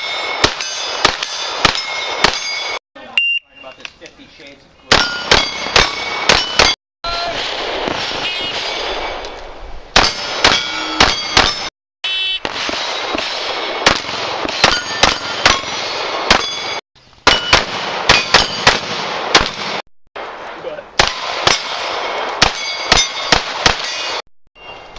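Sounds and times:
pistol shots: 0.0 - 2.8, 4.9 - 6.8, 9.9 - 11.7, 12.4 - 19.8, 21.0 - 24.2
steel target plate ringing: 0.0 - 2.8, 5.0 - 6.8, 10.0 - 11.7, 14.6 - 15.7, 16.3 - 18.8, 22.5 - 24.8.

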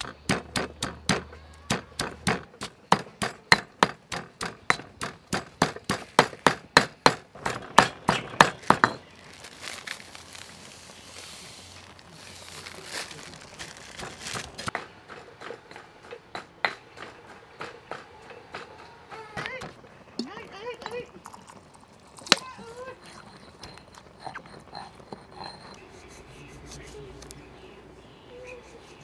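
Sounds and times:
pestle pounding in stone mortar: 0.0 - 9.1, 23.1 - 26.2.

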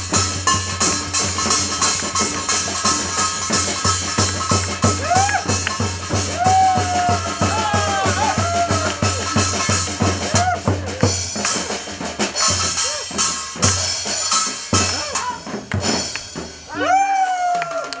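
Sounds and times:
drum kit and barrel drum beat: 0.0 - 18.0
gliding vocal shouts: 6.3 - 9.3.

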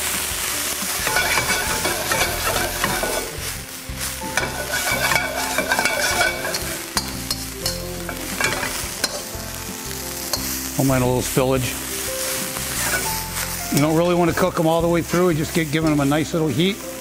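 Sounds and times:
vegetables sizzling in a wok: 0.0 - 17.0
metal spatula scraping a wok: 0.9 - 9.4, 12.0 - 14.4.

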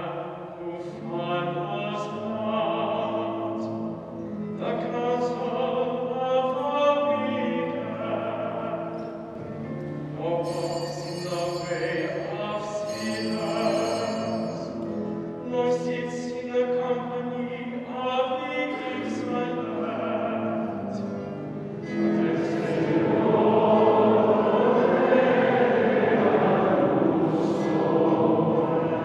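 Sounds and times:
choir singing long held notes: 21.8 - 29.0.

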